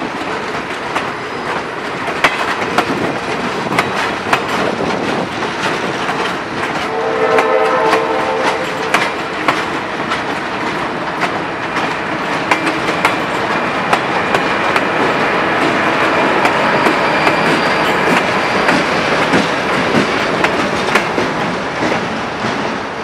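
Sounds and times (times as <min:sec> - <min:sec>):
wheels clicking over rail joints: 0:00.0 - 0:06.9, 0:09.4 - 0:22.8
train wheels rolling on rail: 0:00.0 - 0:23.0
faint high squeal: 0:16.5 - 0:19.0.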